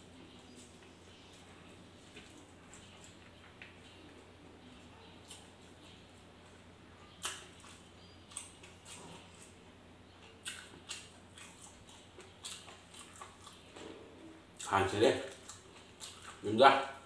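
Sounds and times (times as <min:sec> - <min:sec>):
faint low hum: 0:00.0 - 0:17.0
chewing: 0:07.1 - 0:09.6, 0:10.2 - 0:17.0.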